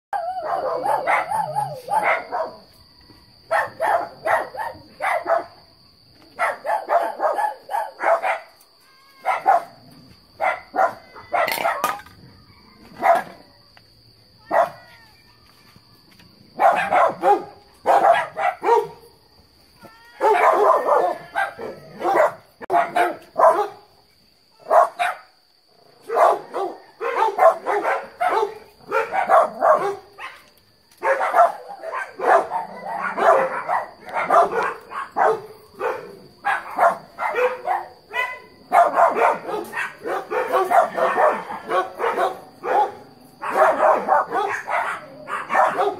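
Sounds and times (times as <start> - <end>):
dogs barking: 0.2 - 2.7, 3.5 - 5.6, 6.3 - 8.6, 9.3 - 9.8, 10.4 - 12.0, 12.9 - 13.4, 14.5 - 14.8, 16.6 - 19.0, 20.2 - 23.9, 24.7 - 25.3, 26.0 - 45.9.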